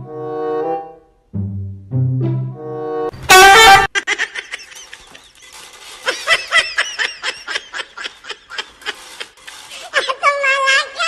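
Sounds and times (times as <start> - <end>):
person laughing: 3.3 - 10.4.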